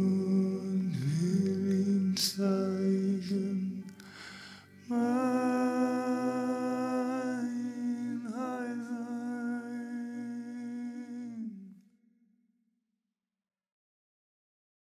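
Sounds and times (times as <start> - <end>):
man humming a long note: 0.0 - 4.0.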